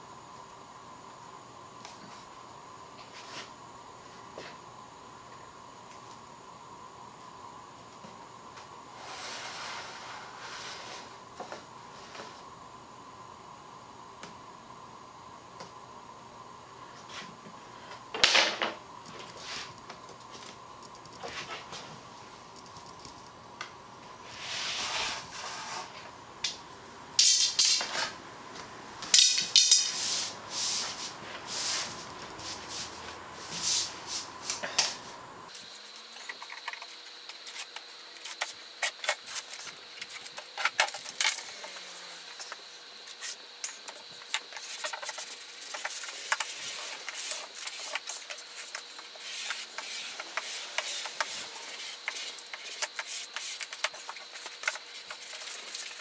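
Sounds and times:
hand tool scraping over veneer: 0:09.0 - 0:11.1
wooden dowels sliding and knocking: 0:09.0 - 0:12.4, 0:24.3 - 0:26.1, 0:29.1 - 0:35.1, 0:35.7 - 0:56.0.

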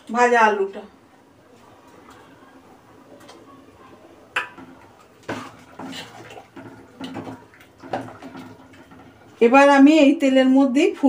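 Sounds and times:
wet scraping stirring: 0:01.6 - 0:09.6.

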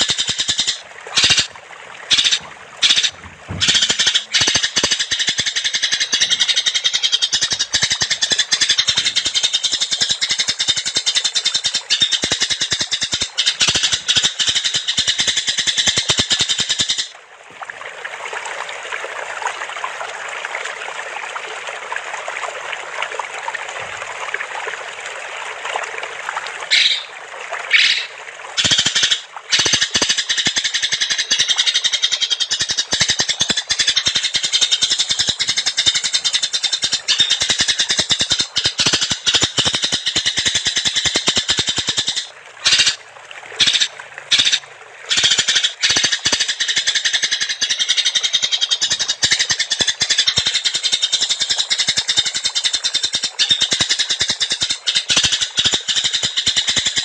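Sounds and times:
songbird rattling trill: 0:02.1 - 0:17.1.

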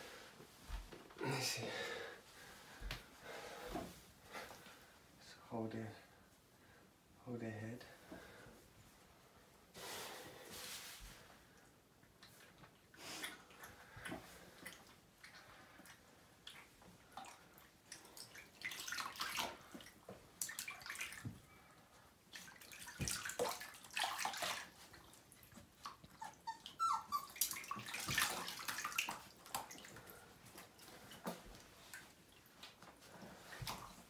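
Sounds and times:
bathwater splashing: 0:13.1 - 0:21.4, 0:22.2 - 0:34.0.

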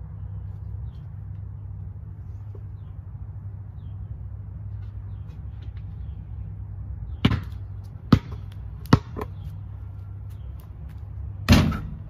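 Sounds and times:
low outdoor rumble: 0:00.0 - 0:12.0
basketball bouncing on concrete: 0:07.2 - 0:12.0.

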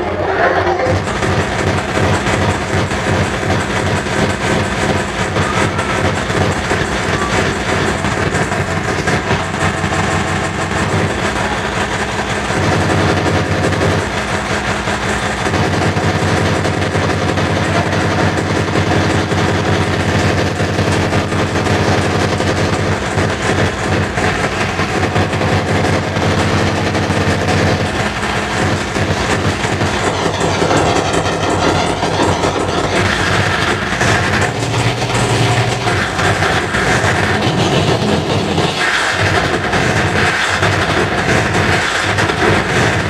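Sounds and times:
low bass: 0:00.0 - 0:40.2
hardcore techno music: 0:00.0 - 0:43.0
distorted kick drum: 0:00.7 - 0:43.0.

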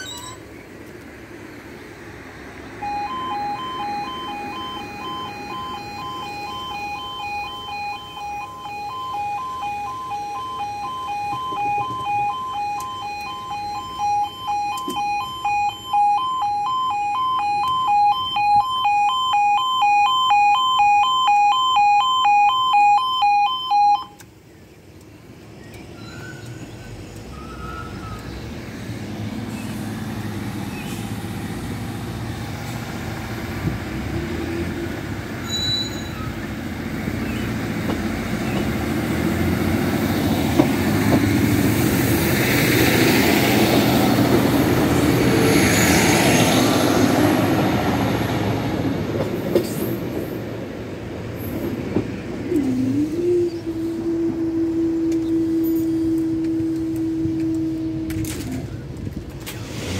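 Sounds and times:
diesel train passing: 0:00.0 - 0:21.8, 0:25.2 - 0:59.9
two-tone crossing alarm: 0:02.8 - 0:24.3, 0:53.6 - 0:57.9.

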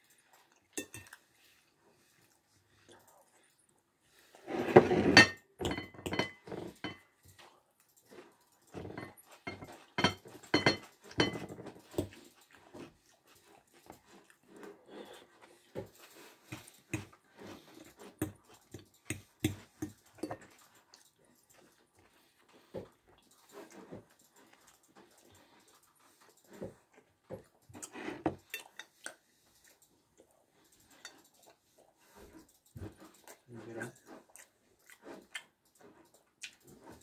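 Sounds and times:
chewing and lip-smacking: 0:00.0 - 0:04.3, 0:11.8 - 0:37.0.

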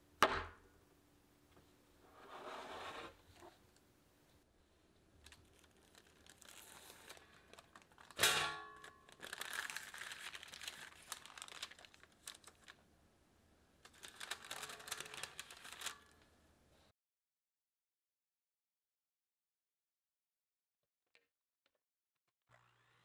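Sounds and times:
baking paper crinkling: 0:05.1 - 0:12.8, 0:13.8 - 0:16.3
metal cake pan clank: 0:08.2 - 0:08.9.

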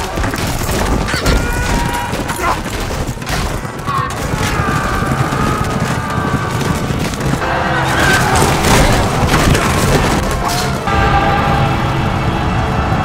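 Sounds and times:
film score music: 0:00.0 - 0:13.0
drawn-out cries: 0:03.5 - 0:09.2.

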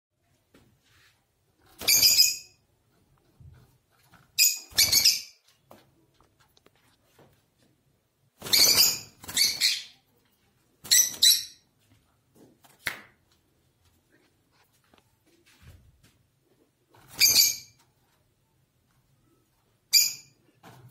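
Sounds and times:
birds giving shrill harsh calls: 0:04.4 - 0:05.4.

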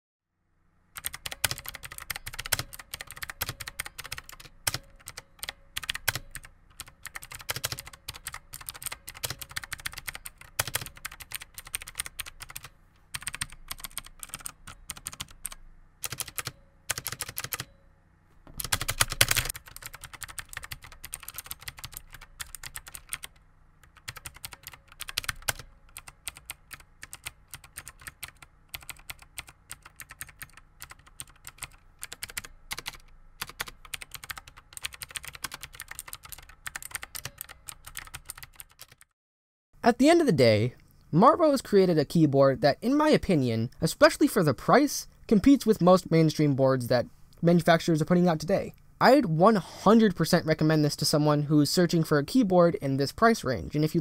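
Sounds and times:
graphics card fan hum: 0:00.4 - 0:39.0, 0:39.8 - 0:54.0.

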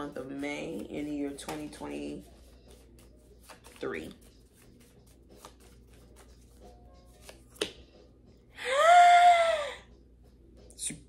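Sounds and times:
cards being shuffled: 0:00.2 - 0:07.8.

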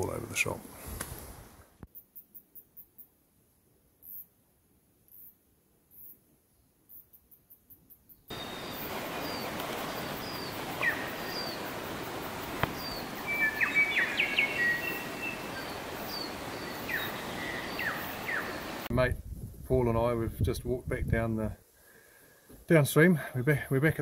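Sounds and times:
birds chirping: 0:08.2 - 0:18.9
rushing outdoor background: 0:08.3 - 0:19.2
bird whistled notes: 0:12.8 - 0:18.6.

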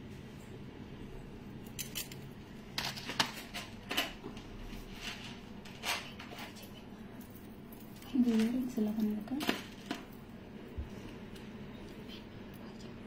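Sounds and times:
jewellery clicking and clinking: 0:01.6 - 0:04.2.

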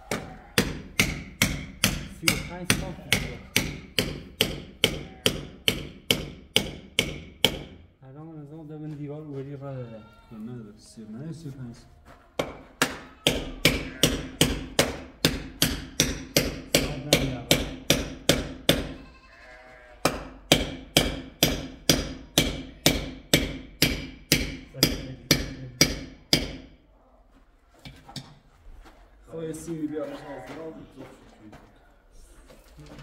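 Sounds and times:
claw hammer striking brick: 0:00.1 - 0:07.8, 0:12.4 - 0:19.0, 0:20.0 - 0:26.7.

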